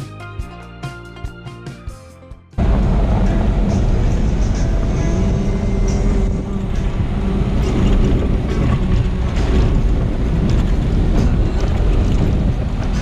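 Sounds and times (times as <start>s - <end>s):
tyres and engine rumble: 2.6s - 13.0s
wind buffeting microphone: 2.6s - 13.0s.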